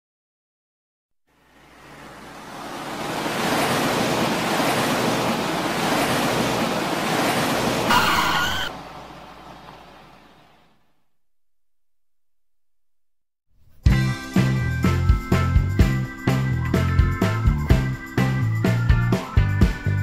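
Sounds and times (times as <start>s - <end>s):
car engine and road noise: 1.3s - 10.3s.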